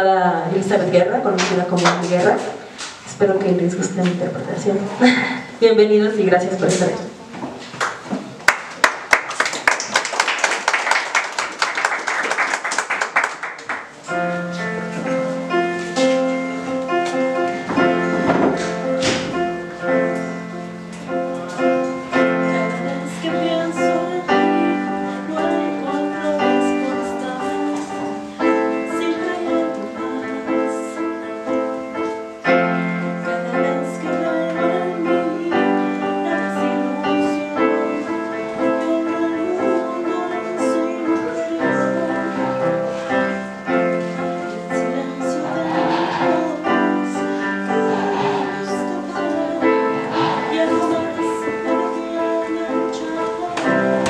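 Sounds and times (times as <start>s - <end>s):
audience applause: 7.8s - 14.0s
electronic keyboard piano: 13.8s - 54.0s.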